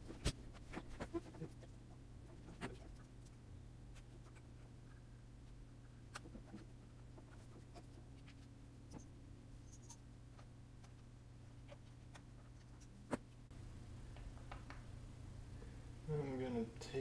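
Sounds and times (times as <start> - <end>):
low steady hum: 0.0 - 17.0
faint clicks and taps: 14.1 - 14.9.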